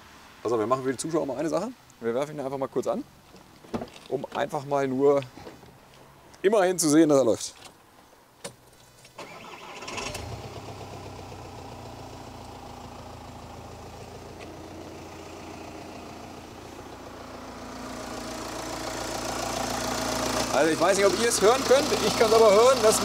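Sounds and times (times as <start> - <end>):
diesel engine starting and idling: 9.2 - 23.0.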